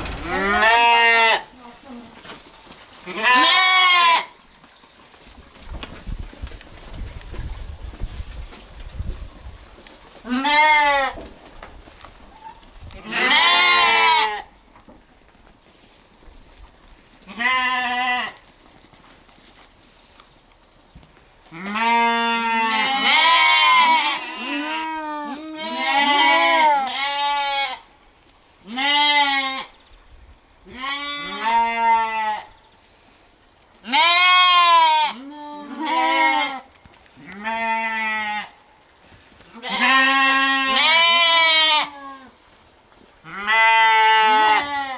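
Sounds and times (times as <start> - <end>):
lambs bleating: 0.2 - 1.5, 3.1 - 4.3, 10.2 - 11.2, 13.0 - 14.5, 17.3 - 18.4, 21.6 - 27.8, 28.6 - 29.7, 30.7 - 32.5, 33.8 - 38.6, 39.5 - 42.3, 43.2 - 44.9.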